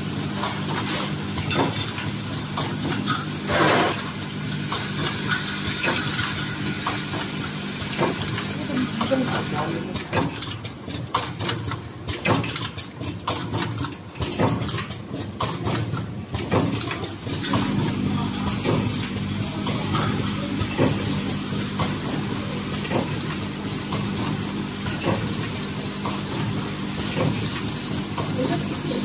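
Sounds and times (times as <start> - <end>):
machine clicking and clacking: 0.4 - 29.0
low machine hum: 17.2 - 29.0.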